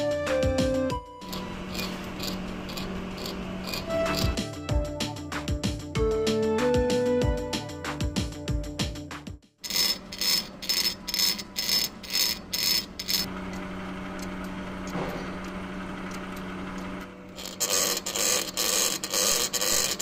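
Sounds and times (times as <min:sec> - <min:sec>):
lathe hum: 0:01.2 - 0:04.6, 0:09.6 - 0:20.0
lathe tool scraping rhythmically: 0:01.2 - 0:04.7, 0:09.6 - 0:13.3, 0:15.4 - 0:20.0.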